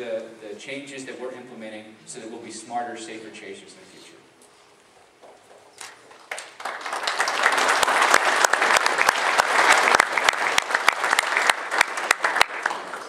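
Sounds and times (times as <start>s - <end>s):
close sharp claps: 5.2s - 13.0s
audience applauding: 5.8s - 13.0s.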